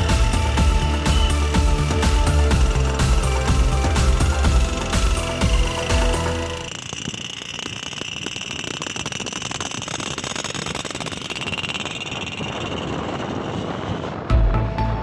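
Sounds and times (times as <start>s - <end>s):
music with heavy bass: 0.0s - 6.7s, 14.3s - 15.0s
thin high whine: 0.0s - 14.7s
motorcycle road noise: 0.0s - 15.0s.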